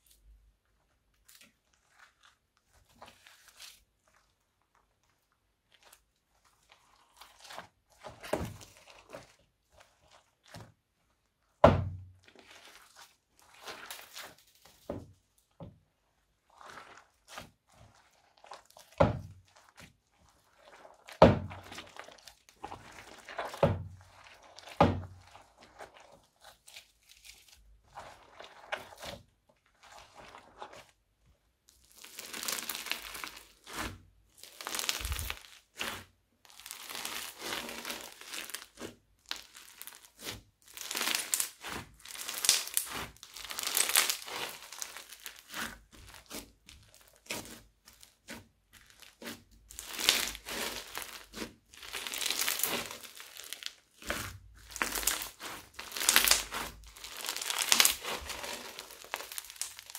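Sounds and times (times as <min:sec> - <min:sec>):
foam slime crackling when squeezed: 0:12.2 - 0:14.9, 0:31.7 - 0:59.9.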